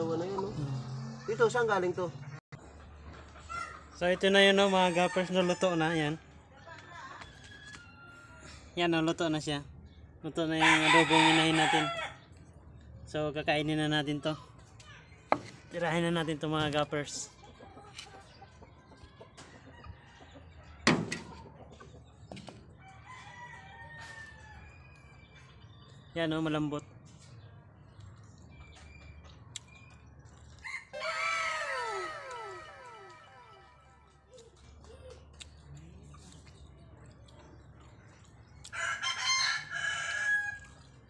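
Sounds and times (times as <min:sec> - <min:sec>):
chickens clucking: 0:02.6 - 0:05.4, 0:16.0 - 0:22.8, 0:30.3 - 0:38.4
rooster crowing faintly: 0:30.7 - 0:34.1.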